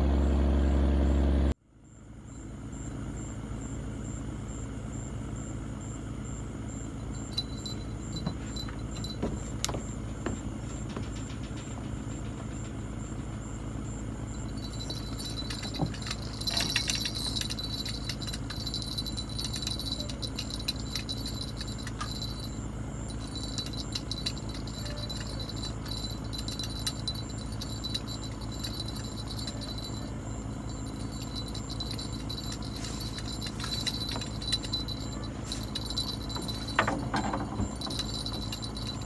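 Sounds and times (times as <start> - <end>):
low engine-like hum: 0.0 - 39.0
metallic clicks and jingling: 7.0 - 12.8, 14.3 - 39.0.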